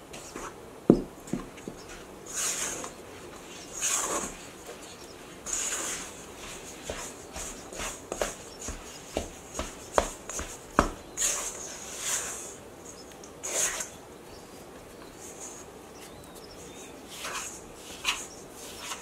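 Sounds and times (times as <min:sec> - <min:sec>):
spatula scraping bowl: 0:02.3 - 0:12.5, 0:17.1 - 0:19.0.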